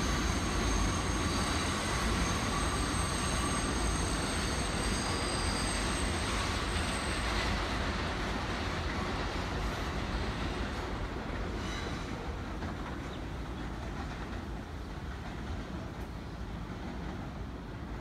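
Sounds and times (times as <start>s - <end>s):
high wheel squeal: 0.0s - 8.0s, 11.5s - 12.4s
subway train rumble: 0.0s - 18.0s.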